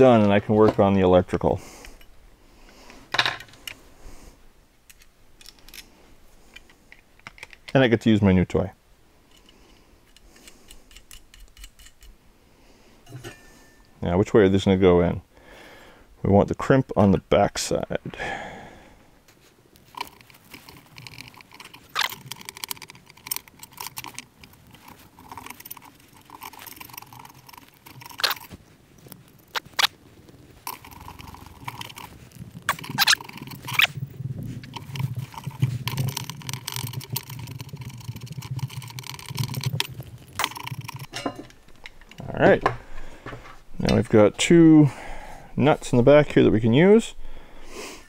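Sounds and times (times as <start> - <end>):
rivet nut tool clicks: 9.3 - 12.2
tool crunching and scraping: 19.3 - 44.2.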